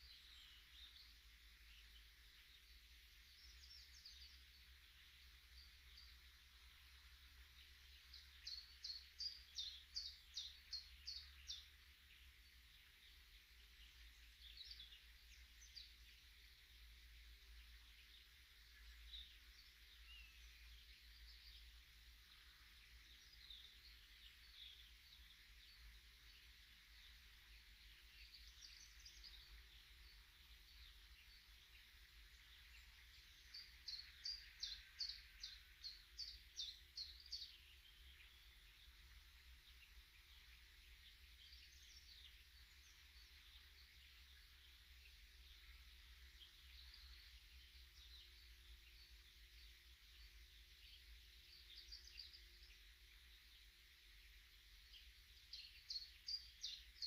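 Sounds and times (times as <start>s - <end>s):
birds chirping: 0.0s - 57.0s.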